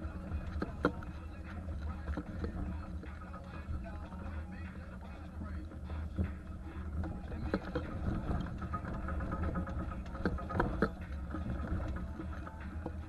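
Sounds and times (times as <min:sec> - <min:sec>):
knocks and rattles: 0:06.1 - 0:13.0.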